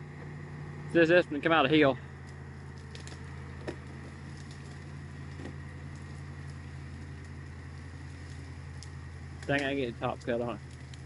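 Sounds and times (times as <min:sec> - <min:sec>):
tractor engine idling: 0:00.0 - 0:11.0
faint ticks: 0:08.2 - 0:11.0.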